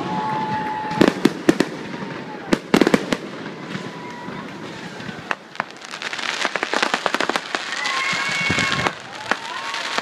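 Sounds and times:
high firework whistle: 0:00.0 - 0:02.9, 0:06.5 - 0:10.0
fireworks crackling: 0:00.0 - 0:10.0
fireworks popping: 0:00.0 - 0:10.0.

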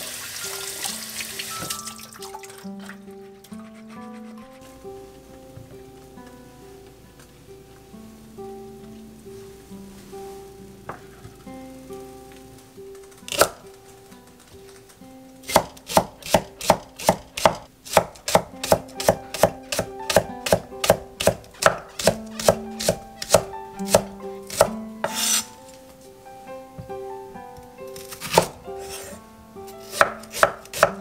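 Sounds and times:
blade scraping across board: 0:03.2 - 0:04.8, 0:24.5 - 0:25.6, 0:28.2 - 0:29.2
knife chopping on wooden board: 0:15.5 - 0:25.5, 0:28.0 - 0:29.1, 0:29.9 - 0:31.0.

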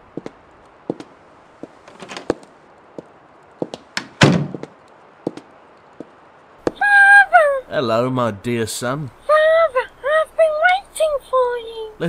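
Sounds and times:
heavy door thud: 0:04.0 - 0:04.7.

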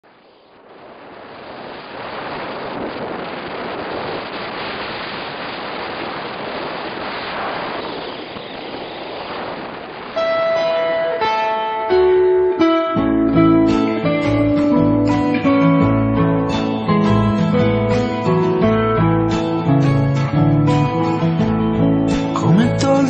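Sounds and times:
steady rushing noise: 0:00.0 - 0:22.8
plucked guitar note: 0:10.2 - 0:23.0.

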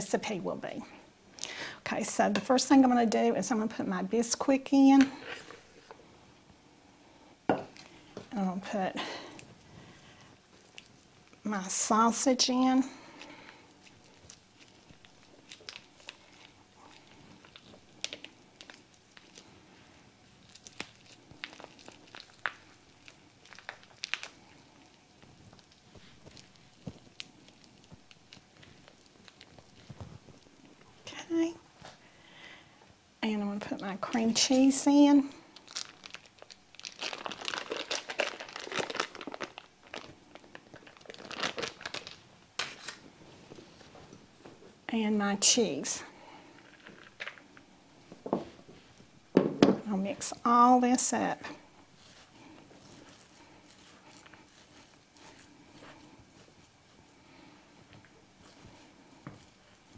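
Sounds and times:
plastic wrapper crackling: 0:13.3 - 0:19.5, 0:20.3 - 0:30.5, 0:35.5 - 0:43.0, 0:46.6 - 0:47.7.

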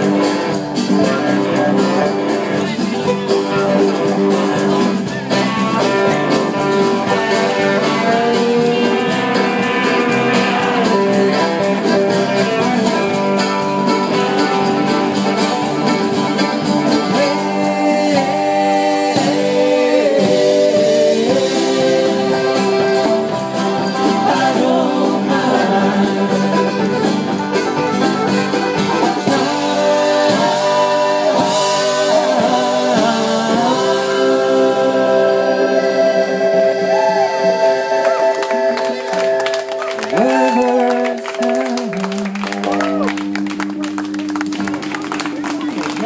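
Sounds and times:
steady percussion beat: 0:00.0 - 0:35.1
accordion: 0:00.0 - 0:40.1
guitars: 0:00.0 - 0:46.0
men singing together: 0:17.0 - 0:27.1, 0:29.2 - 0:39.4.

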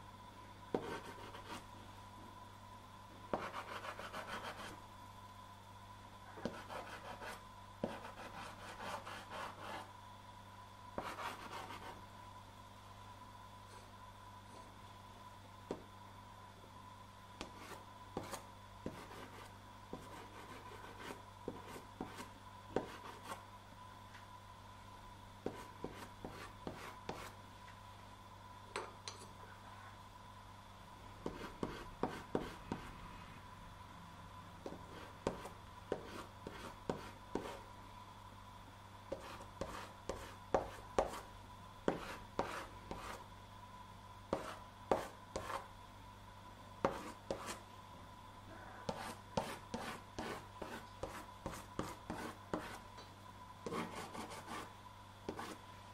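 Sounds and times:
faint steady hum: 0:00.0 - 0:55.9
pastel scratching on paper: 0:03.4 - 0:04.7.

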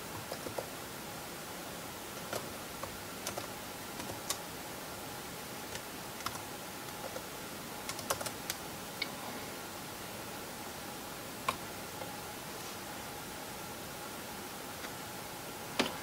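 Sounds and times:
steady background hiss: 0:00.0 - 0:16.0
laptop keyboard typing: 0:00.2 - 0:00.7, 0:02.1 - 0:04.4, 0:05.7 - 0:08.6.

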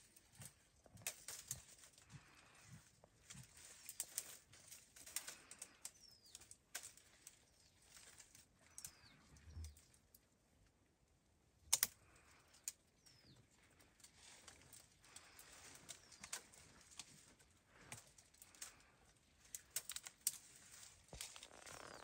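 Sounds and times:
small birds chirping: 0:00.1 - 0:10.3, 0:11.9 - 0:22.0.

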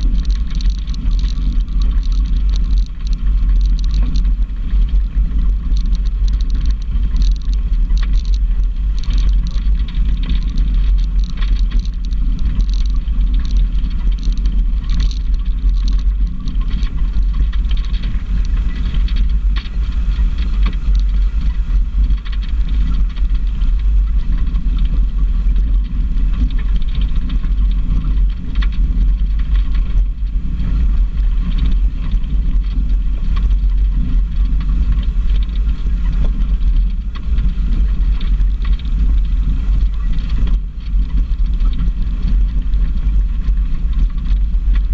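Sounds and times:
vehicle engine and road rumble: 0:00.0 - 0:44.9.

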